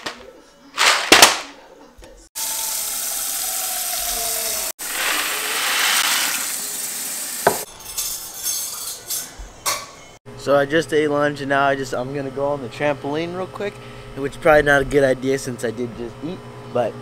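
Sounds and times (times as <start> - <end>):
faucet water filling pot: 2.4 - 7.7
dry pasta pouring: 4.8 - 6.6.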